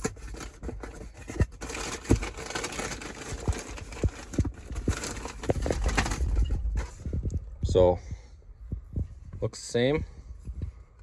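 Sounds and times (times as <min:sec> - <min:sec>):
plastic bag crinkling: 0:01.5 - 0:06.8.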